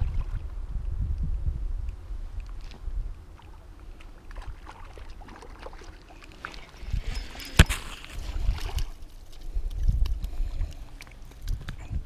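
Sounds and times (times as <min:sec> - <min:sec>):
fishing reel clicks and rustling: 0:06.7 - 0:11.8.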